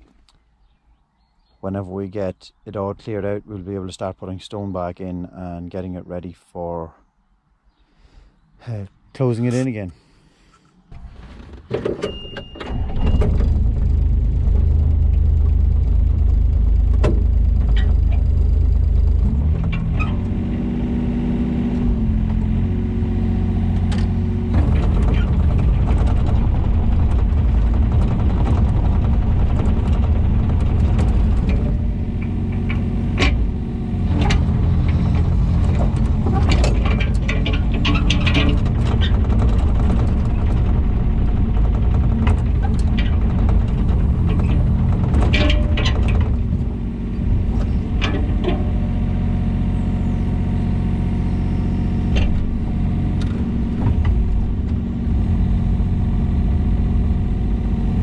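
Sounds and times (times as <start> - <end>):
excavator diesel engine: 12.1 - 58.0.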